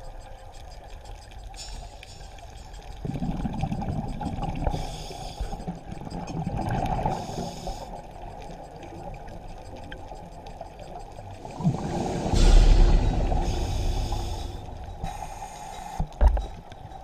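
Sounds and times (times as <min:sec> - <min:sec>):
underwater bubbles gurgling: 0:00.0 - 0:17.0
diver breathing through regulator: 0:04.6 - 0:05.7, 0:07.1 - 0:08.0, 0:11.5 - 0:16.2.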